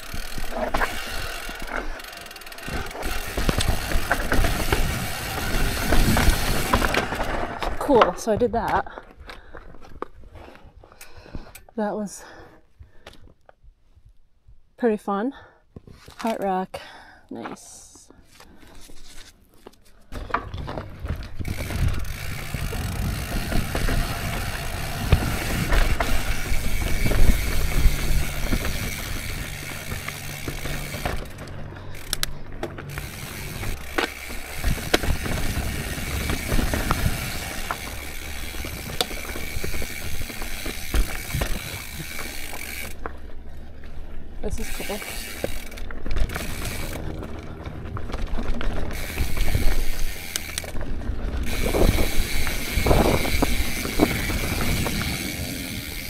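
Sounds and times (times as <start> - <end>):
bike freehub clicking: 0.0 - 8.0, 20.2 - 56.0
bike rattling over rocks: 0.0 - 10.4, 20.0 - 56.0
tyres crunching over loose stones: 0.0 - 10.5, 18.5 - 55.8.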